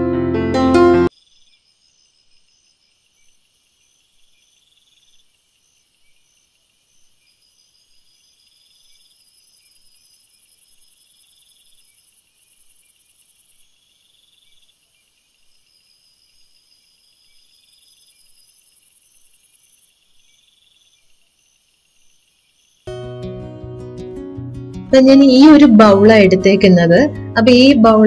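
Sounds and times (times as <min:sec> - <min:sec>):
insects trilling: 0:01.1 - 0:22.9.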